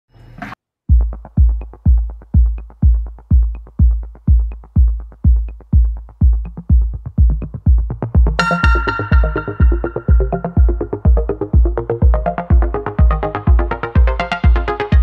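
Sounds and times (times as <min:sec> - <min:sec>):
electronic kick-drum beat: 0:00.9 - 0:15.0
synthesizer chord: 0:08.3 - 0:15.0.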